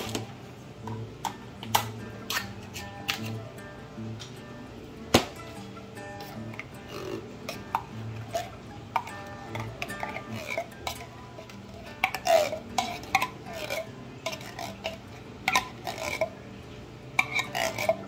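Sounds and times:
metal spoon scraping tin can: 2.2 - 3.4, 6.2 - 16.3, 17.2 - 18.0.

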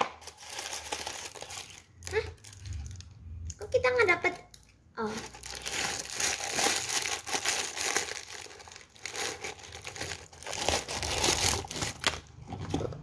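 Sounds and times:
gift-wrap paper crinkling: 0.0 - 3.0, 5.1 - 12.3.

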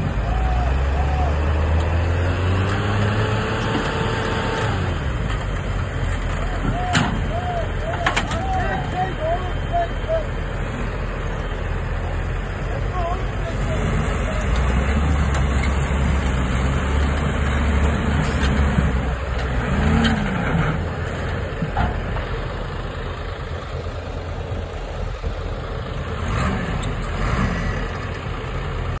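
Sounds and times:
tractor diesel engine under load: 0.0 - 29.0.

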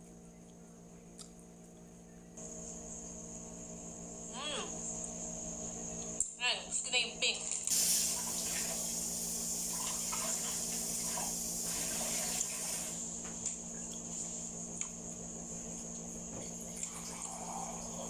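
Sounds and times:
person chewing mochi: 0.0 - 2.0, 13.7 - 16.0
low hum and hiss: 0.0 - 18.0.

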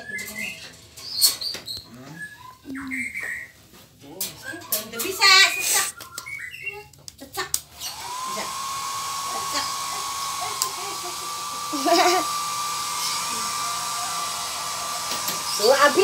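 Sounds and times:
hair dryer whine and blowing: 7.6 - 16.0.

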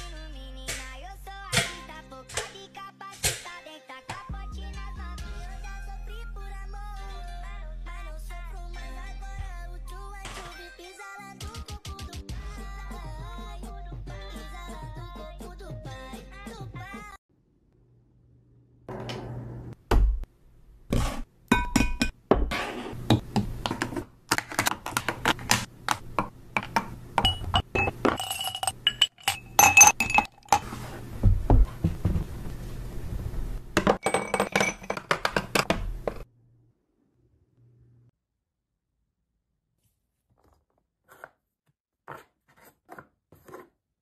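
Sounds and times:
plastic containers clicking and clinking: 23.6 - 30.6.

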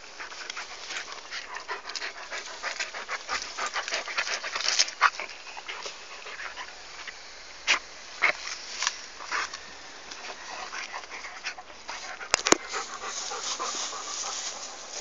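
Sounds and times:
dog chewing sugarcane: 0.0 - 7.2.

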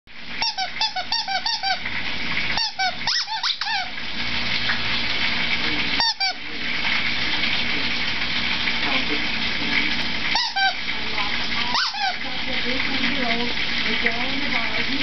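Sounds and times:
food frying sizzle: 0.1 - 0.8, 1.6 - 15.0
squeaky dog toy squeezed: 0.4 - 1.8, 2.6 - 3.9, 6.0 - 6.4, 10.4 - 10.8, 11.7 - 12.2.

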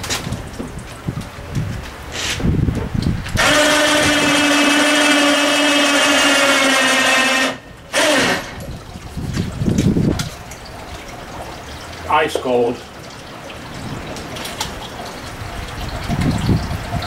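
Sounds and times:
electric hoist motor humming: 3.4 - 8.7.

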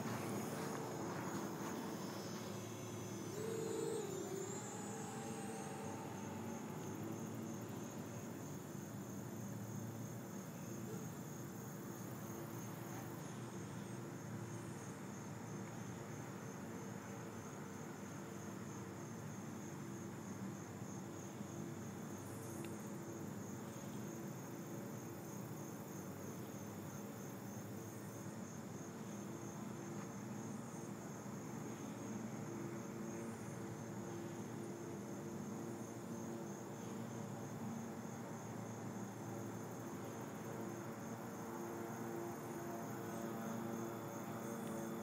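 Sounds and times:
low steady hum: 0.0 - 14.9
crickets chirping: 0.0 - 45.0.

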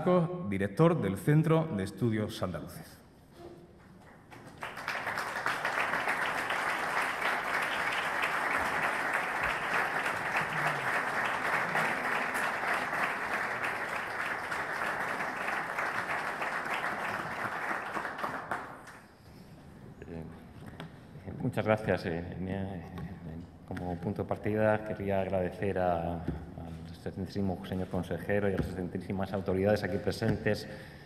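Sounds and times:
audience applauding: 4.0 - 19.1.

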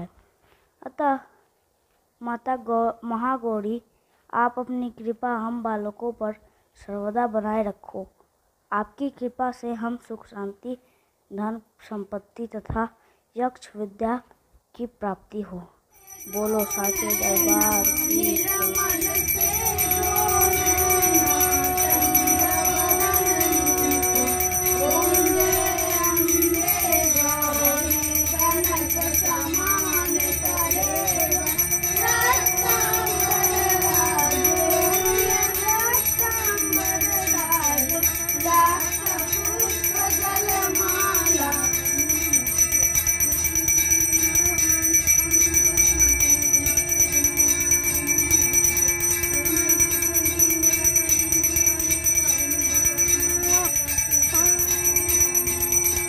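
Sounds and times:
devotional singing: 16.0 - 56.0
small brass hand bell ringing: 16.0 - 56.0.

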